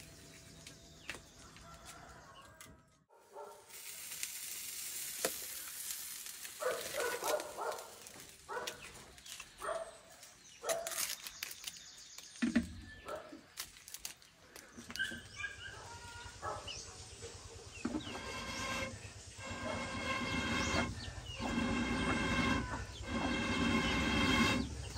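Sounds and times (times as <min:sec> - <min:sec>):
light steady hiss: 0:03.6 - 0:07.2.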